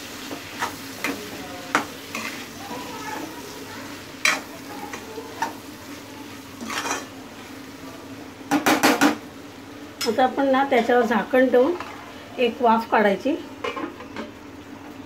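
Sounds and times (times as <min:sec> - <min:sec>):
beans sizzling in oil: 0:00.0 - 0:15.0.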